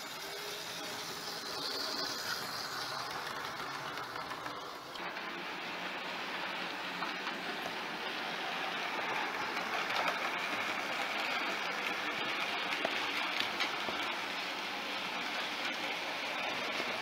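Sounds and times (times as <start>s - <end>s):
model train wheels rattling: 0.0s - 5.2s, 6.9s - 14.2s.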